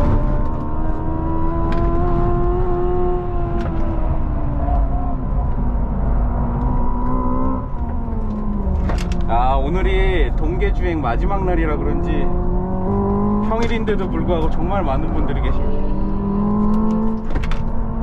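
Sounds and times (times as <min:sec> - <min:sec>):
road and wind noise: 0:00.0 - 0:18.0
electric car droning tone: 0:00.2 - 0:09.4.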